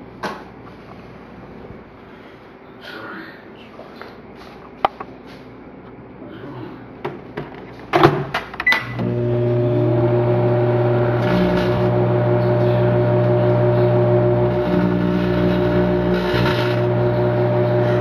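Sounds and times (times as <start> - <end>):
microwave running hum: 8.6 - 18.0.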